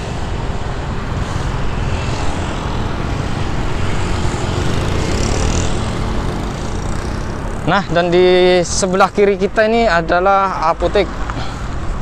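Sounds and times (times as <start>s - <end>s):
motorbike passing close: 0.0s - 9.4s
motorbikes and cars passing: 0.0s - 12.0s.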